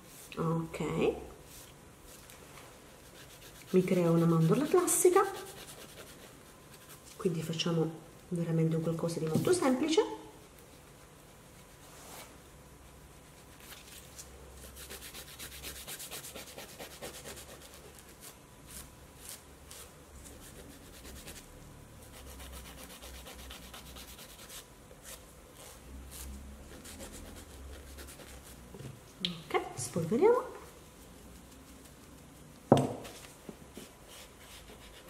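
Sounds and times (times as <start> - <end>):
nail file rasping on fingernail: 14.8 - 17.8, 22.2 - 24.6.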